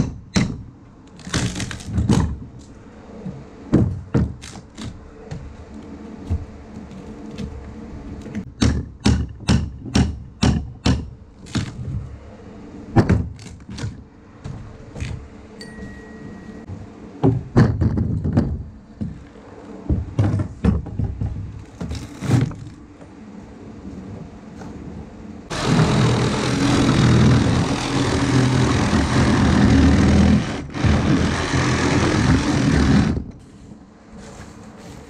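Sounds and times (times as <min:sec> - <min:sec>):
wood cracking: 0:01.1 - 0:02.2
reciprocating saw cutting wood: 0:25.5 - 0:33.3.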